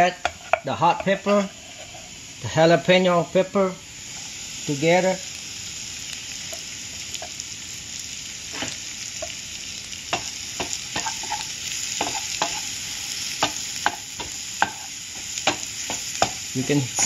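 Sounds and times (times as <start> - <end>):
food sizzling in a frying pan: 0.0 - 17.0
wooden spatula scraping a pan: 0.2 - 2.2, 10.6 - 17.0.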